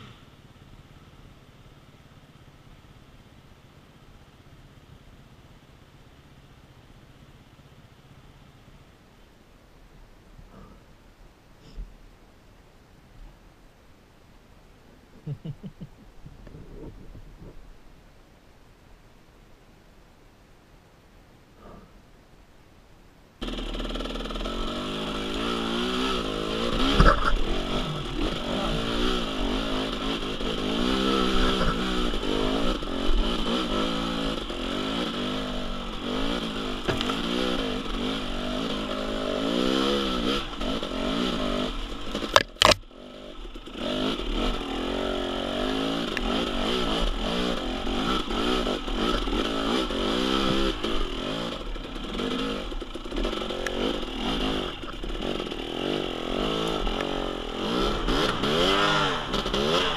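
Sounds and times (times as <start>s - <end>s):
dirt bike engine revving: 23.4s - 59.9s.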